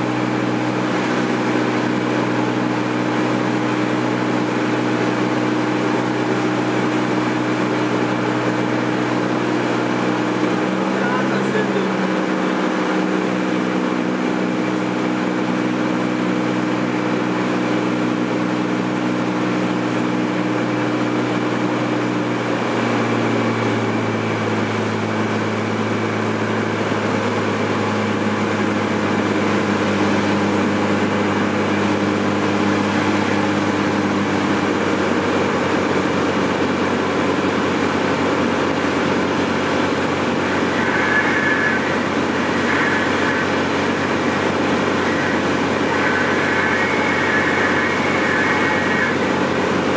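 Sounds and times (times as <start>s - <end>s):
propeller plane engine running: 0.0s - 49.9s
airflow noise: 37.9s - 49.9s.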